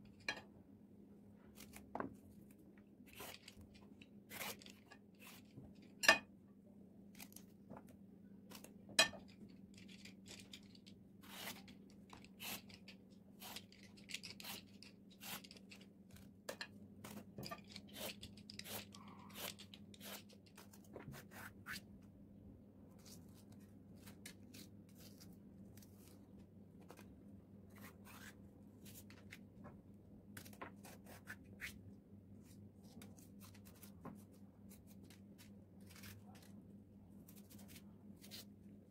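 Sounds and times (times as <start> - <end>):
knife peeling vegetable skin: 1.6 - 1.8, 3.1 - 3.6, 4.3 - 5.5, 11.2 - 11.7, 17.9 - 21.8, 34.7 - 36.5
knife slitting pepper: 4.3 - 5.5, 17.5 - 20.6.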